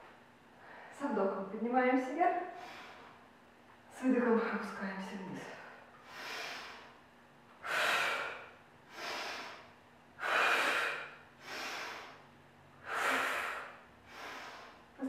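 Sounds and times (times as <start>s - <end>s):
woman breathing: 0.6s - 1.0s, 2.5s - 3.3s, 5.4s - 15.0s.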